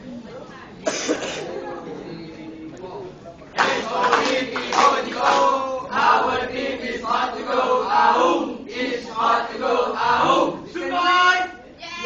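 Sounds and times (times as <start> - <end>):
group chanting in unison: 3.6 - 11.3.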